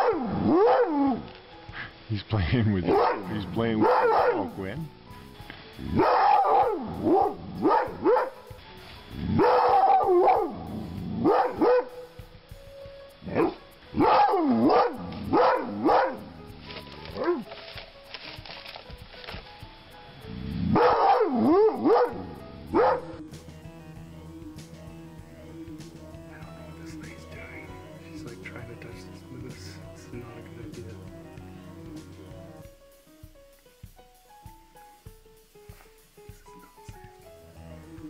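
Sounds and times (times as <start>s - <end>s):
dog barking excitedly: 0.0s - 1.2s, 2.9s - 4.5s, 5.9s - 8.4s, 9.3s - 10.6s, 11.2s - 12.0s, 13.3s - 16.3s, 20.7s - 23.1s.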